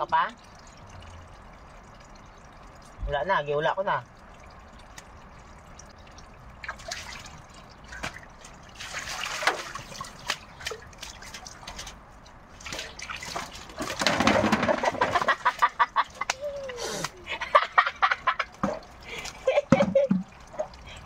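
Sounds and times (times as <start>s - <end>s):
bird splashing in water: 6.6s - 16.4s.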